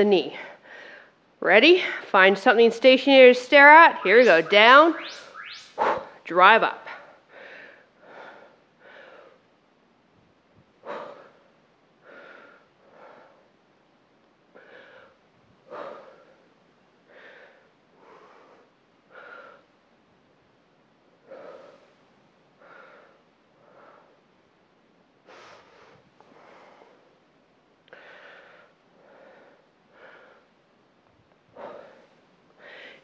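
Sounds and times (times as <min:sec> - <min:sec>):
woman breathing under exertion: 0:07.3 - 0:09.4, 0:27.9 - 0:30.6, 0:31.5 - 0:33.0.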